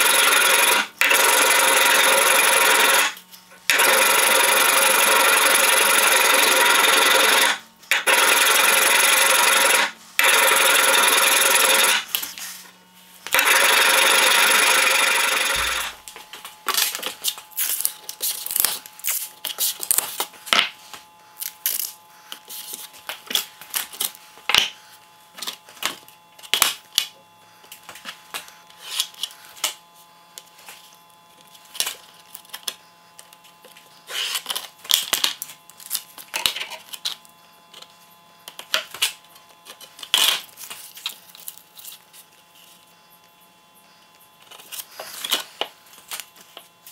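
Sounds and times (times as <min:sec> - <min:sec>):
masking tape tearing: 0:16.7 - 0:20.3, 0:34.0 - 0:37.2, 0:38.5 - 0:42.2.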